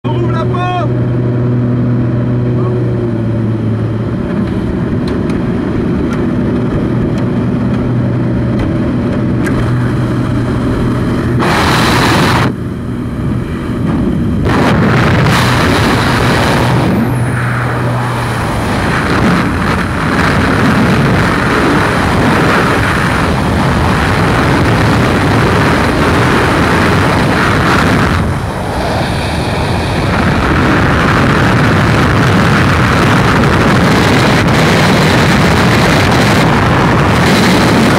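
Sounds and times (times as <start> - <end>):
propeller engine drone: 0.0 - 37.9
freefall wind rushing: 9.6 - 37.9.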